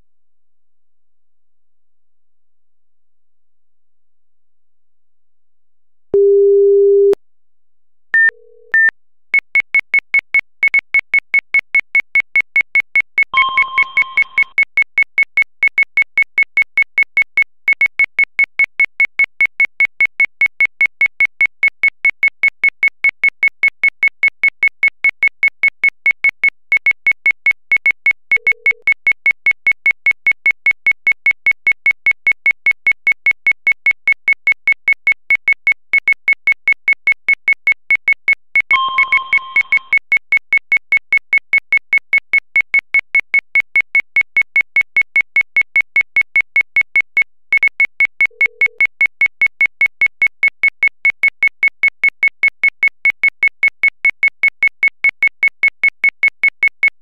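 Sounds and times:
electronic beeping: 8.2 - 8.9.

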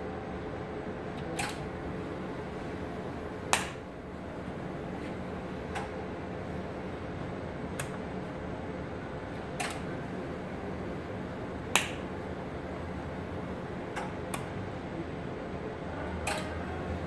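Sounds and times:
steady low hum: 0.0 - 17.0
welding machine clicks: 9.6 - 9.9, 11.8 - 12.0, 16.3 - 16.5.

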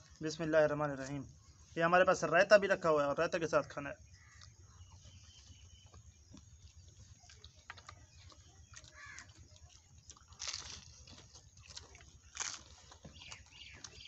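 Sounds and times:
crisp pastry being bitten: 6.3 - 14.0.

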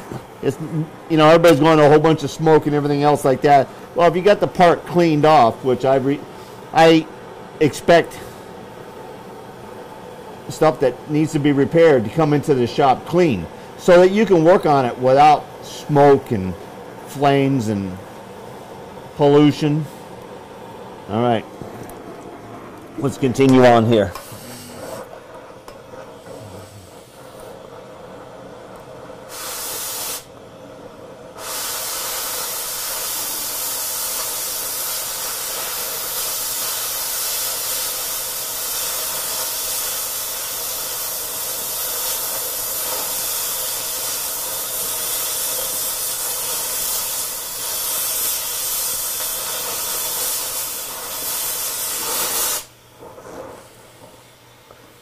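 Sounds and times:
cutting torch hissing: 0.0 - 21.8, 22.5 - 30.4, 31.3 - 55.0
torch blast: 23.4 - 28.3, 29.0 - 30.3, 31.3 - 54.6.

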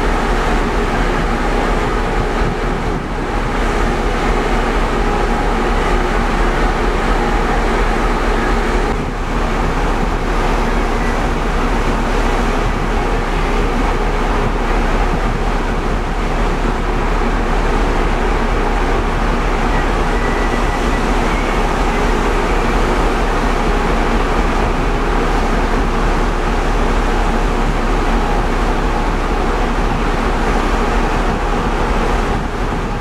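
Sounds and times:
ship engine drone: 0.0 - 33.0
water hissing along a hull: 0.0 - 33.0.

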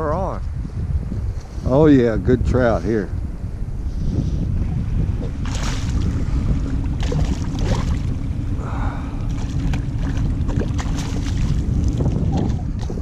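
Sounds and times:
wind buffeting microphone: 0.0 - 13.0
water lapping at a kayak: 4.3 - 13.0
fish splashing at the surface: 5.4 - 6.1, 9.3 - 11.6.

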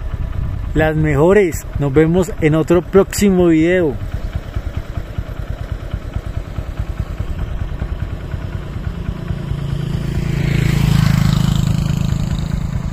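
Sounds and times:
motorcycle engine approaching: 0.0 - 12.9
pulsing idling engine: 0.0 - 12.9.

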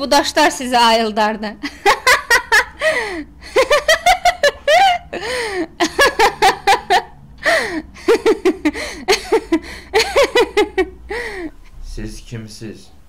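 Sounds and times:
gasping in-breaths: 2.8 - 3.4, 5.1 - 5.8, 7.4 - 8.0, 8.7 - 10.0, 11.0 - 11.7.

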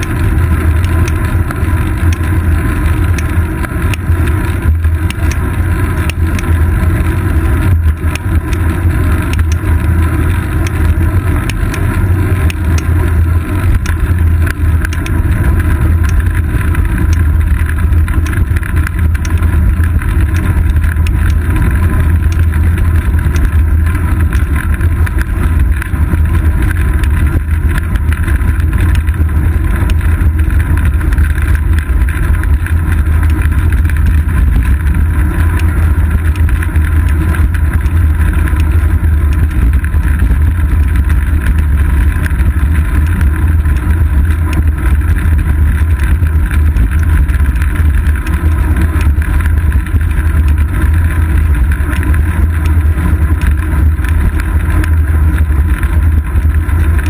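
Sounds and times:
road rumble: 0.0 - 57.0.

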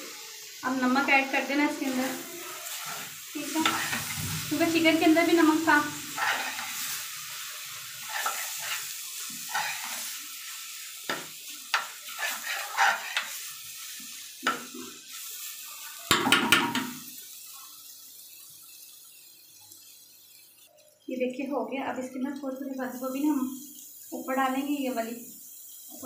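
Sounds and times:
frying sizzle: 0.0 - 26.0
metal spoon scraping frying pan: 1.8 - 4.8, 6.1 - 7.4, 8.0 - 10.2, 11.7 - 13.5.

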